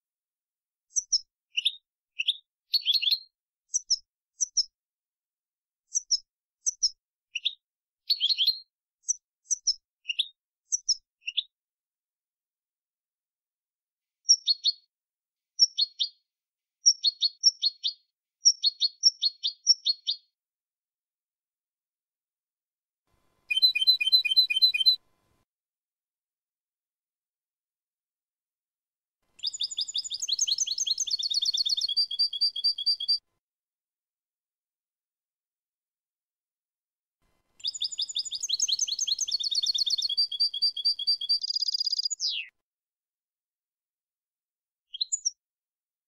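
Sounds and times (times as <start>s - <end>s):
goldfinch singing: 23.5s - 25.0s, 29.4s - 33.2s, 37.6s - 42.5s.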